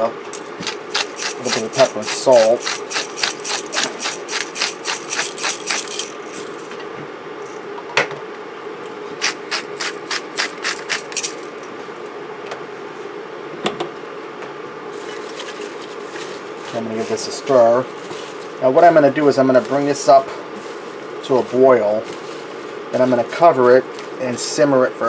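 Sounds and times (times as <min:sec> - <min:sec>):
pepper grinder clicking: 0:00.6 - 0:06.7, 0:09.2 - 0:11.5.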